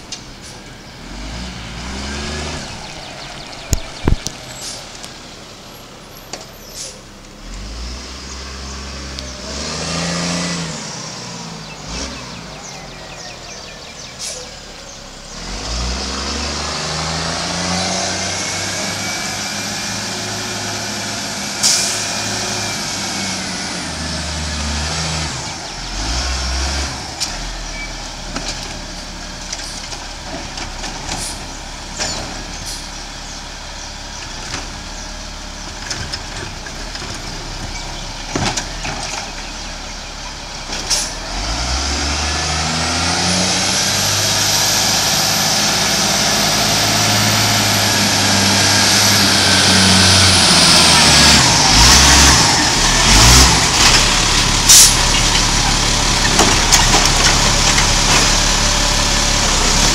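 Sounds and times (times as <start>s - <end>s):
garbage truck engine: 0.0s - 59.9s
sharp hiss-like crack: 40.8s - 41.2s.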